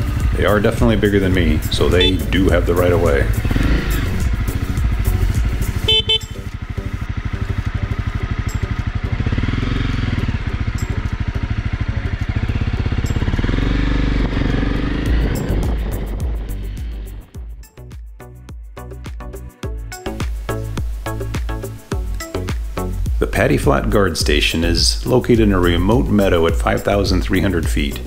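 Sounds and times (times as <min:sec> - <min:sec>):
motorcycle engine idling: 0:00.0 - 0:17.6.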